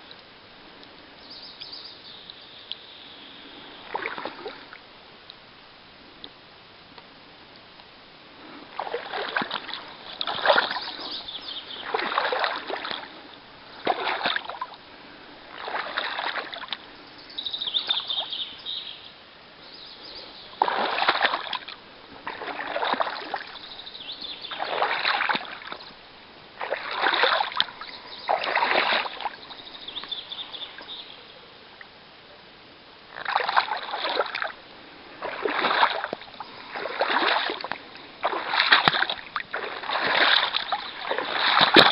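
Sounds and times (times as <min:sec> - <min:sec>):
oars splashing in water: 0:03.9 - 0:04.8, 0:08.7 - 0:14.8, 0:15.5 - 0:16.8, 0:20.1 - 0:26.0, 0:26.6 - 0:31.0, 0:33.2 - 0:41.9.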